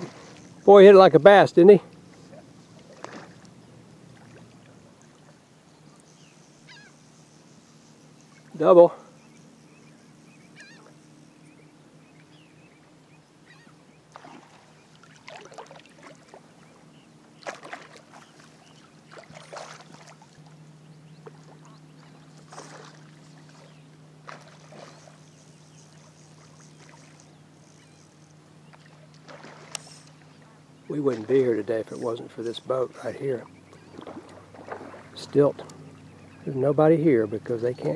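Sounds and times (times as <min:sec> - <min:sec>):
fish splashing in water: 0:00.0 - 0:00.6, 0:14.1 - 0:16.8, 0:17.4 - 0:20.6, 0:21.2 - 0:27.4, 0:28.7 - 0:30.4, 0:33.8 - 0:35.2
faint low hum: 0:00.0 - 0:37.9.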